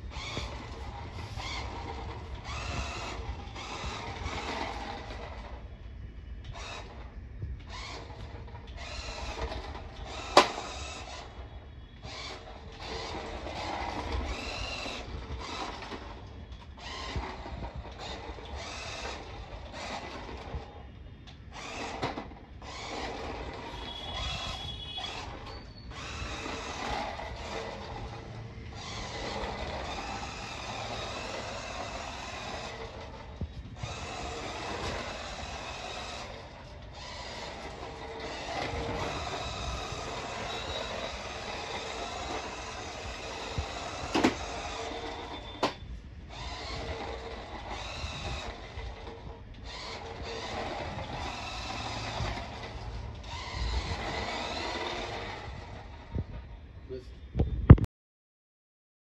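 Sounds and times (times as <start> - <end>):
toy truck electric motor whirring: 0.0 - 5.8, 6.4 - 57.0.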